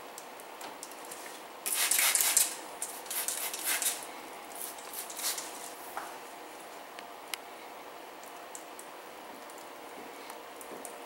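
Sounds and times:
spray bottle squirting: 1.6 - 5.7.

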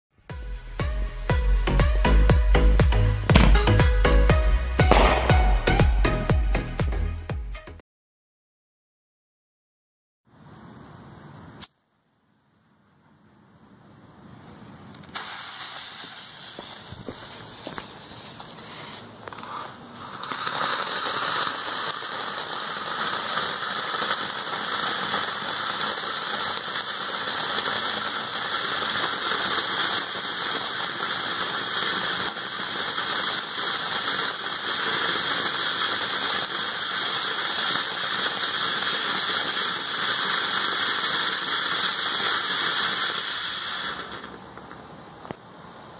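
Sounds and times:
firework fountain hissing: 1.5 - 6.1, 14.3 - 45.9.

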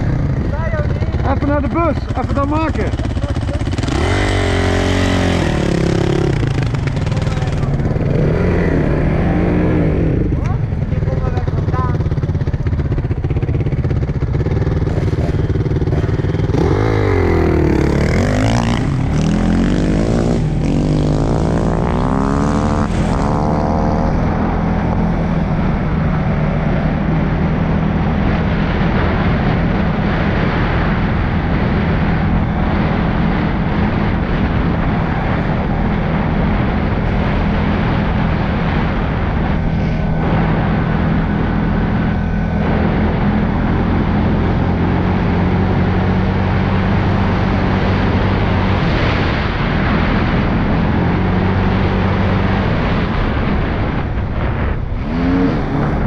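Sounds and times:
atv engine running: 0.0 - 56.0
dirt bike engine revving: 0.0 - 56.0.

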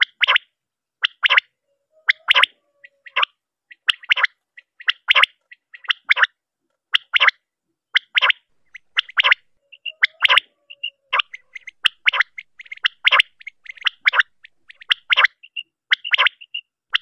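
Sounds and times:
quail calling: 0.0 - 17.0
soft quick chirping: 8.0 - 17.0.

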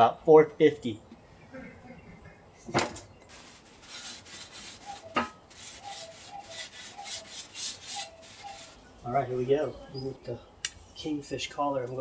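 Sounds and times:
paper towel rubbing metal grill: 3.3 - 8.8.

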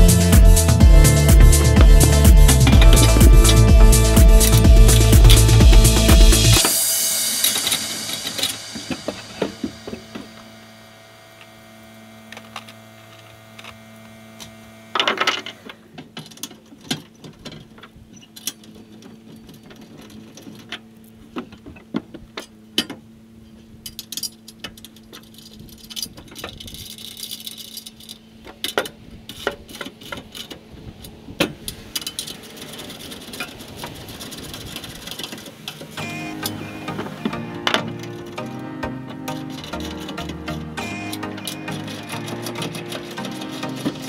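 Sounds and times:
metal parts clanking in truck bed: 15.0 - 44.0.

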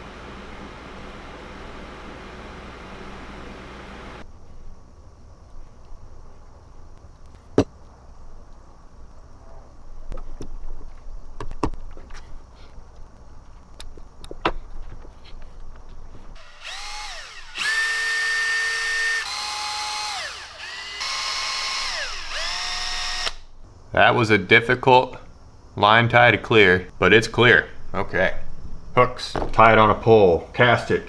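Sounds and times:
power drill whining: 16.4 - 23.5.

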